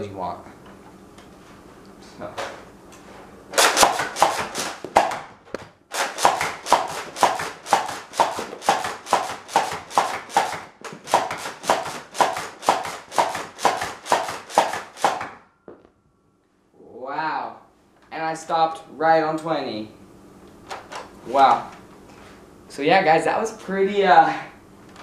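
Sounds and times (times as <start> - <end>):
toy blaster pump clacking: 5.9 - 15.3.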